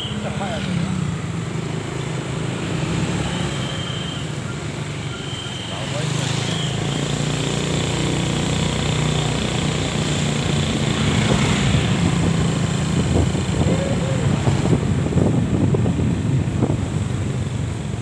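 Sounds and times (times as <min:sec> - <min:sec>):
motorbike engine drone: 0:00.0 - 0:18.0
road noise: 0:00.0 - 0:18.0
surrounding motorcycle engines: 0:00.0 - 0:18.0.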